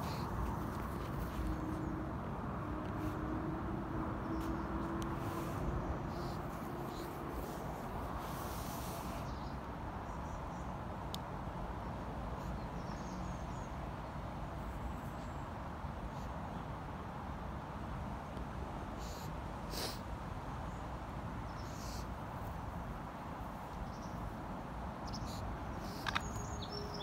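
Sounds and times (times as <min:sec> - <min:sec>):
rustling hiss: 0:00.0 - 0:01.9, 0:04.3 - 0:09.8, 0:18.8 - 0:20.2, 0:21.0 - 0:27.0
outdoor background noise: 0:00.0 - 0:27.0.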